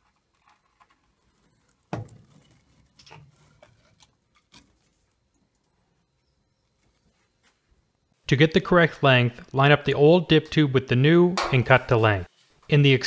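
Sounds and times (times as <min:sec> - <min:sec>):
plastic tube knocking and scraping: 0:00.0 - 0:05.0.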